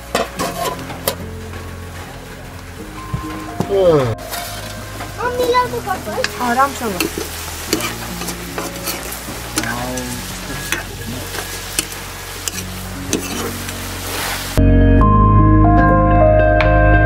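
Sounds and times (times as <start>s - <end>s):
curry sizzling in a pan: 0.0s - 14.6s
metal ladle scraping a pan: 0.1s - 1.2s, 6.3s - 14.6s.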